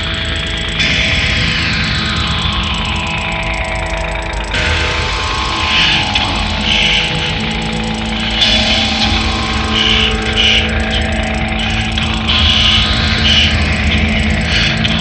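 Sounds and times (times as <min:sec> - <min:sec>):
buzzing synthesizer drone: 0:00.0 - 0:15.0
steady low tone: 0:00.0 - 0:15.0
gritty noise swells: 0:04.5 - 0:15.0.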